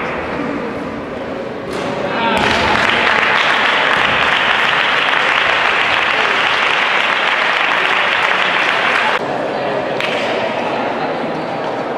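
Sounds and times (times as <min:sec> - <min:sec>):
spectators applauding: 0:02.4 - 0:09.2.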